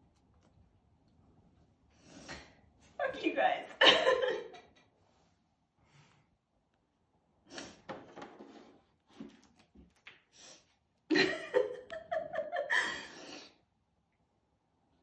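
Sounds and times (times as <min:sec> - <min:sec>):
woman crying and sobbing: 0:03.8 - 0:04.7, 0:11.1 - 0:13.4.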